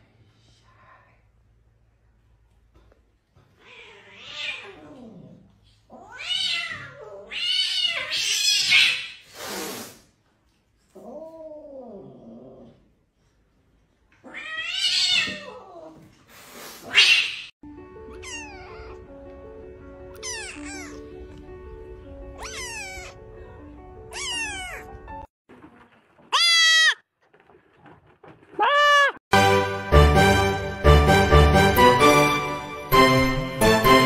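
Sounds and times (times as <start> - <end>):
cat yowling: 6.0 - 9.2, 18.1 - 19.0, 20.1 - 21.1, 22.4 - 23.2, 24.1 - 25.0, 26.3 - 27.0, 28.5 - 29.2
cat hissing: 7.3 - 10.1, 16.3 - 17.5
music: 17.6 - 25.3, 29.3 - 34.0
kitten meowing: 18.1 - 19.0, 20.1 - 21.1, 22.4 - 23.2, 24.1 - 24.9.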